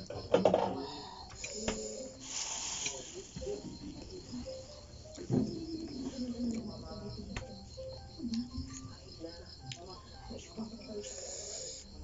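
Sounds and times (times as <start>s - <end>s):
faint insects trilling: 0.0s - 12.0s
hissy slurp: 2.2s - 3.3s.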